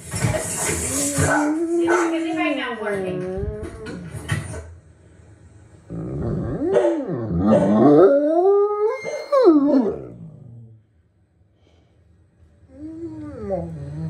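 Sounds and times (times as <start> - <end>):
dog howling: 6.0 - 10.7, 12.7 - 14.0.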